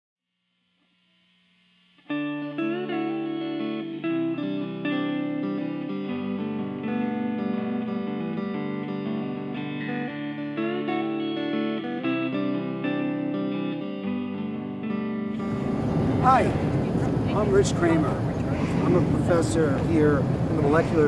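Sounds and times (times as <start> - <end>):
instrumental music with plucked strings: 2.1 - 17.2.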